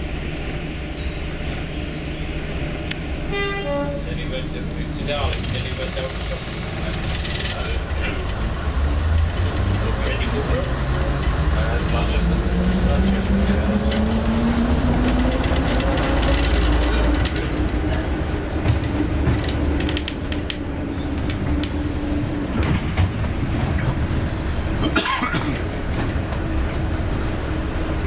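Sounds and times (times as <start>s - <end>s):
train engine: 0.0s - 28.0s
wheels clicking over rail joints: 4.4s - 21.8s.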